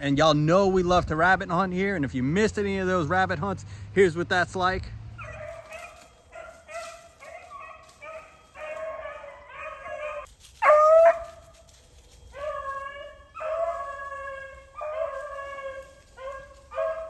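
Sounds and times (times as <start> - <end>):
hounds baying: 5.0 - 17.0.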